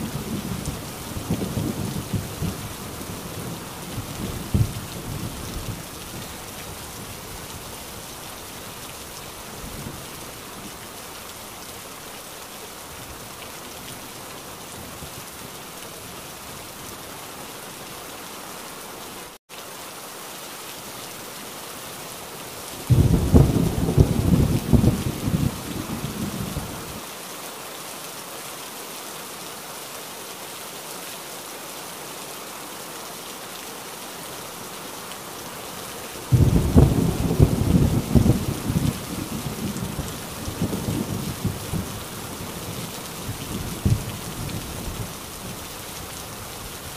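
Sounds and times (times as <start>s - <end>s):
heavy rain falling: 0.0s - 46.9s
thunder clap rumbling: 22.9s - 26.8s, 36.3s - 42.0s.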